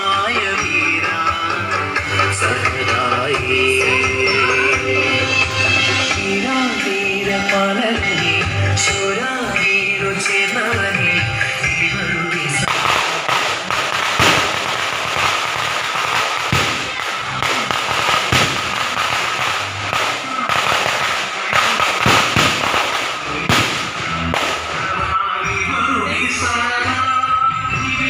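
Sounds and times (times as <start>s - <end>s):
firecrackers crackling: 0.0s - 27.1s
firecracker bangs: 12.6s - 25.2s.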